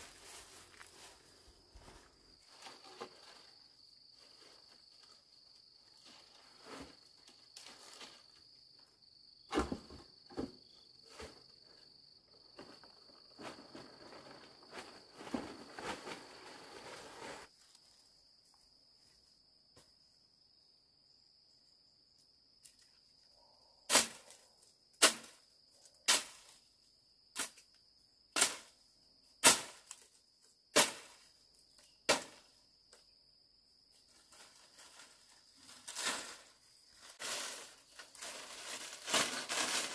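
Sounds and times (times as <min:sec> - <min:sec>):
rustling: 0:00.0 - 0:05.2, 0:12.7 - 0:18.0, 0:34.1 - 0:39.9.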